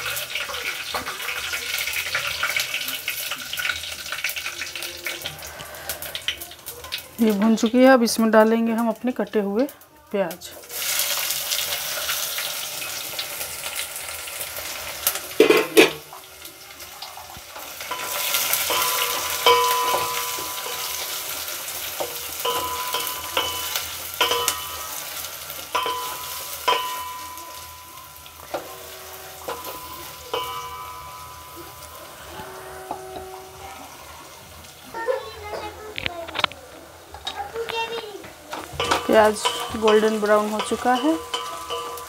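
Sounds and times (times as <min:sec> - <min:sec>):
onions sizzling in hot fat: 0:00.0 - 0:42.0
spatula scraping and knocking pot: 0:17.9 - 0:25.0, 0:28.4 - 0:33.6, 0:38.5 - 0:42.0.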